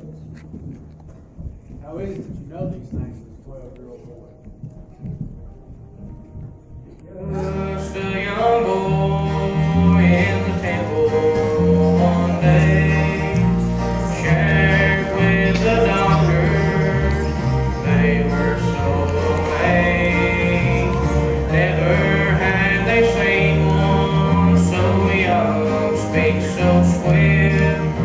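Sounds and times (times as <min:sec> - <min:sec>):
song with singing: 0:06.9 - 0:28.0
bass line: 0:07.2 - 0:28.0.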